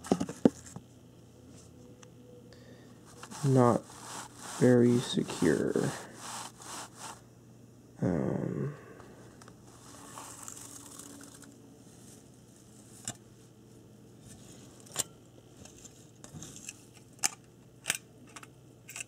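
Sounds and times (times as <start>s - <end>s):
rustling of packing material: 3.1s - 7.2s, 9.7s - 13.0s.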